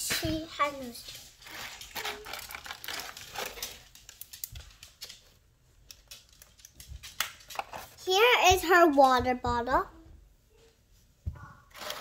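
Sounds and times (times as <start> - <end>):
hands handling plastic toy pieces: 1.1 - 8.0.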